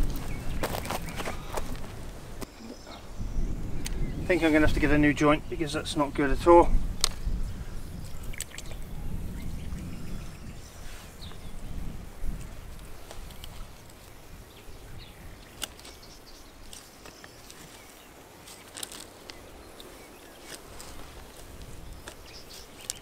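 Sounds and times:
plastic and earth clicks and scuffs: 15.4s - 23.0s.

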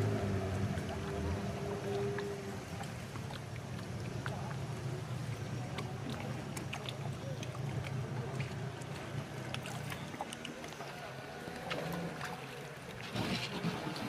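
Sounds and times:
outboard motor humming: 0.0s - 14.0s
river water washing: 0.0s - 14.0s.

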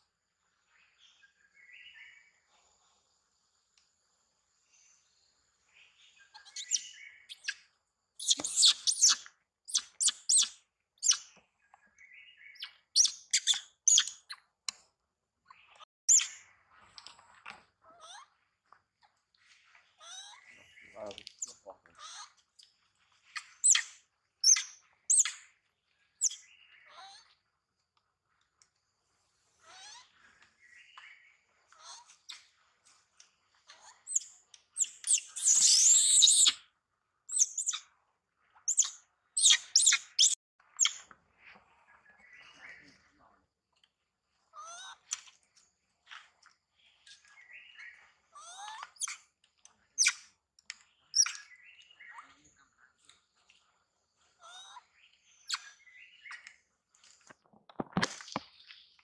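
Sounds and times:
bird chirping: 0.7s - 3.0s, 4.6s - 14.8s, 15.5s - 17.3s, 18.0s - 27.4s, 29.6s - 36.7s, 37.3s - 38.0s, 38.6s - 43.4s, 46.4s - 56.7s.

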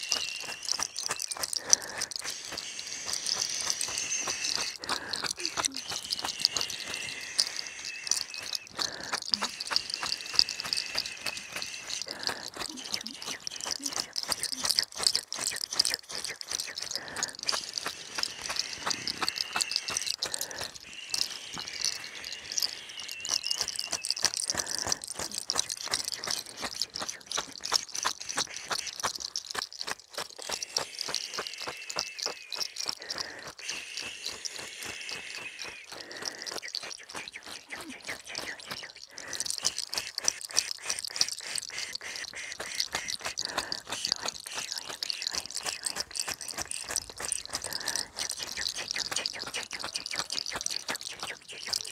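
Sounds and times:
crackling rustling of herb bundle: 0.0s - 41.4s.

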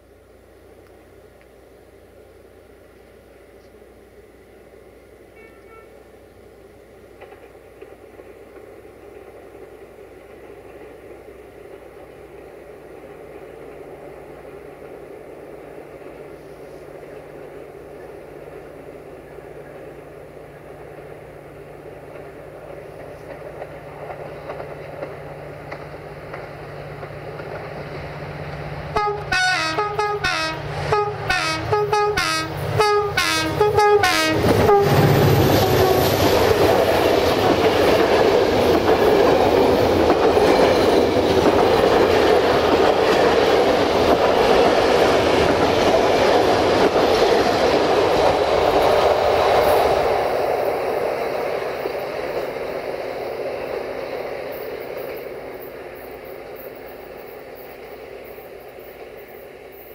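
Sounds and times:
passenger train passing: 0.0s - 59.9s
locomotive horn short blasts: 5.3s - 6.1s, 29.0s - 36.2s
wheels clicking on rails: 7.1s - 18.8s, 19.6s - 30.2s, 33.6s - 59.9s.

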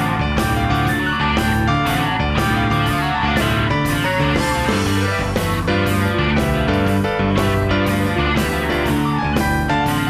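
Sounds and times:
blues-rock band playing: 0.0s - 10.0s
electric guitar: 0.0s - 10.0s.

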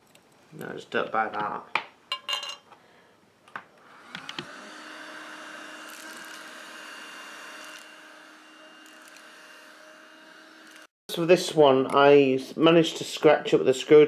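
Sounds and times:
handheld vacuum cleaner humming: 3.8s - 10.9s.

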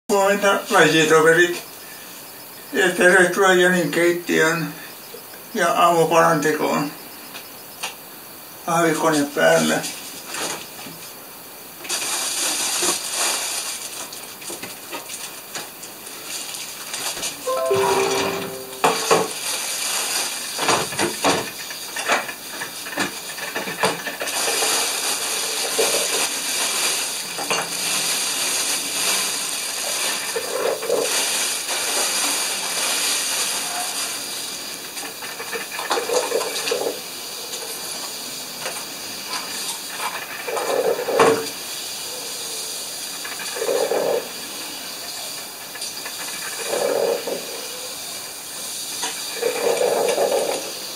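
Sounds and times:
coffee maker hissing and gurgling: 11.8s - 17.3s, 19.6s - 50.9s
clatter of dishes and cutlery: 20.6s - 24.8s, 27.4s - 27.8s, 38.6s - 41.5s.

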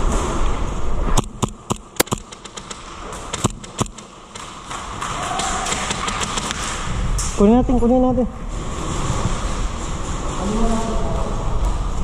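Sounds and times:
sharp clicks and knocks: 1.2s - 7.4s.

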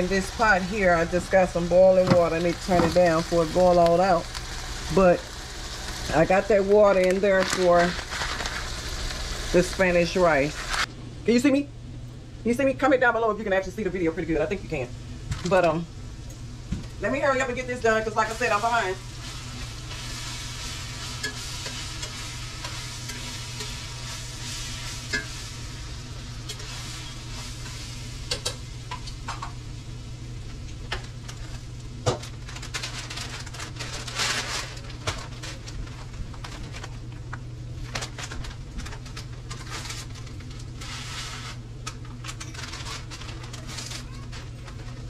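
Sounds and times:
ground beef sizzling: 0.0s - 10.9s, 17.0s - 29.9s
steady low hum: 0.0s - 45.0s.

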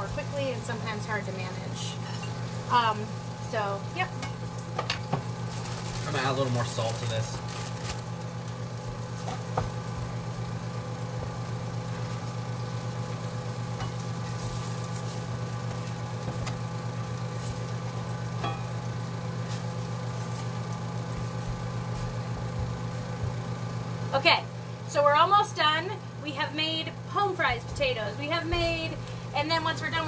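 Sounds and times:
potatoes sizzling in a pan: 0.0s - 30.0s
steady low hum: 0.0s - 30.0s.

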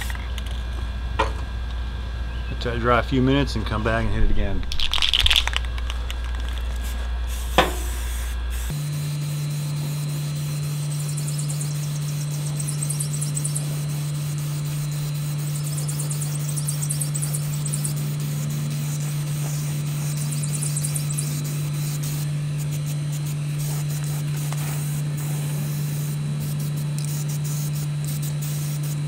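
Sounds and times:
low hum: 0.0s - 29.0s
spray paint can hissing: 4.7s - 8.8s, 9.5s - 29.0s.

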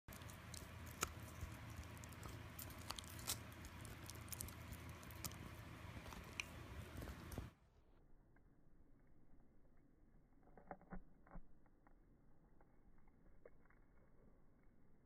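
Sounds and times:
dog chewing on rawhide: 0.1s - 7.5s
steady low hum: 0.1s - 7.6s.

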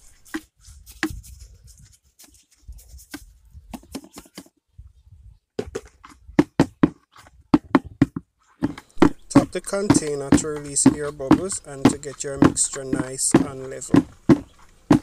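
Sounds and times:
tool scraping wet cement: 8.6s - 15.0s.

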